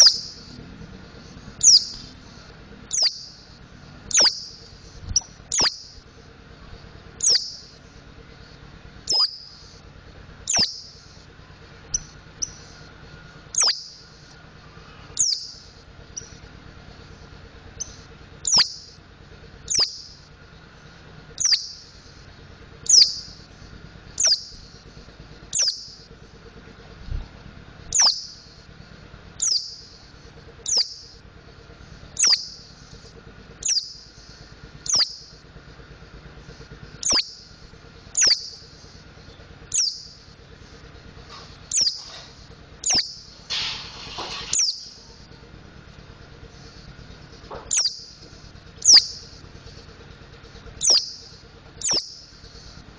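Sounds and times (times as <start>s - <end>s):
bird calling high sliding notes: 0.0s - 6.0s, 9.0s - 9.8s, 10.4s - 11.2s, 42.8s - 45.2s, 46.4s - 49.8s, 50.7s - 52.9s.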